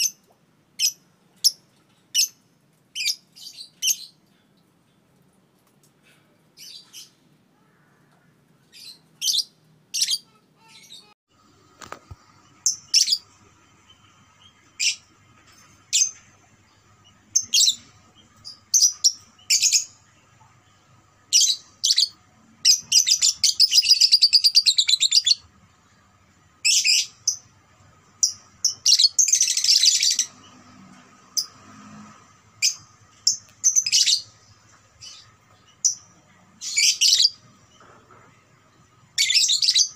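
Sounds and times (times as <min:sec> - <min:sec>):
bird chirping: 0:12.4 - 0:25.5, 0:26.6 - 0:31.5, 0:32.6 - 0:38.2, 0:38.8 - 0:39.9.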